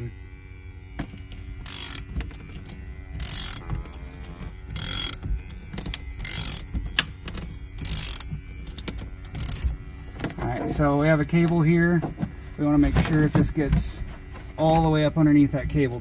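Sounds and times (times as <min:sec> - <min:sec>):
suction cup pump hum: 0:00.0 - 0:16.0
ratchet clicking: 0:01.0 - 0:09.8.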